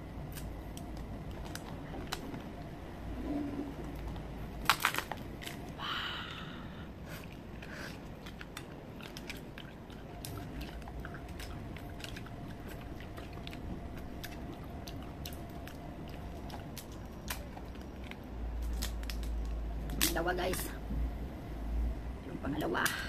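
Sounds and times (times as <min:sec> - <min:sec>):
crab shells cracking: 0:04.1 - 0:05.8, 0:07.3 - 0:20.2
chewing and sucking: 0:07.0 - 0:19.4.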